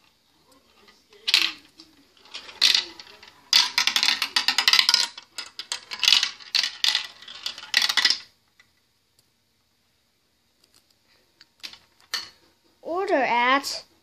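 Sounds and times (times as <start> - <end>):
marbles clattering through plastic run: 0.8 - 8.3.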